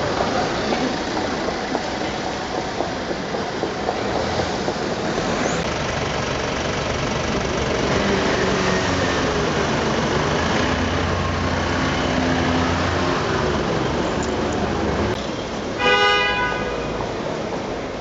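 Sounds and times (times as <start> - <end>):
street noise: 0.0 - 18.0
car engine idling: 4.2 - 8.2.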